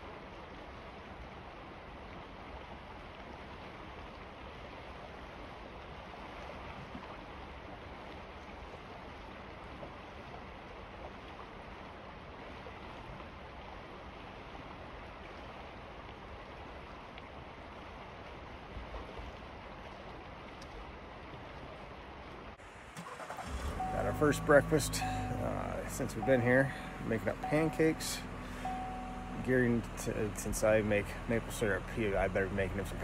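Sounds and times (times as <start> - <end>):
river water rushing: 22.5 - 33.0.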